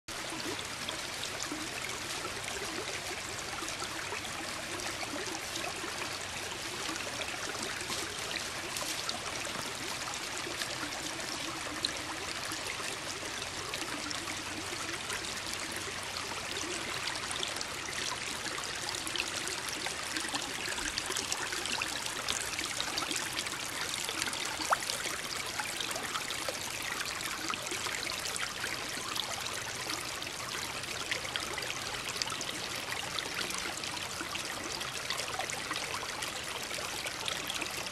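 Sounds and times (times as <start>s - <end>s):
creek trickling over gravel: 0.1s - 37.9s.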